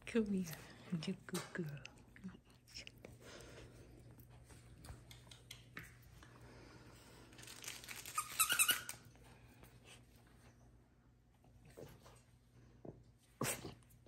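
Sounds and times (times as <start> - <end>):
faint low hum: 0.0 - 14.0
toy crinkling and crunching: 7.3 - 9.1.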